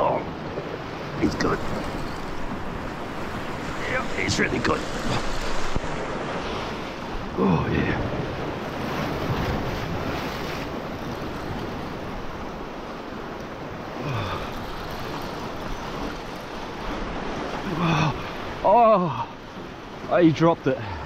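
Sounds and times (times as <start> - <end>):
surf breaking over rocks: 0.0 - 12.4.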